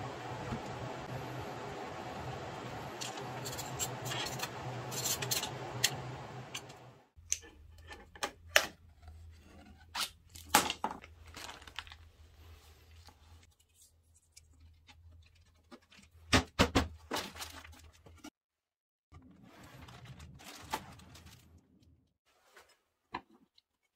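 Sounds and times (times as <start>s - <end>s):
low hum: 0.0s - 7.1s
plastic zip-top bag crinkling: 11.1s - 12.2s.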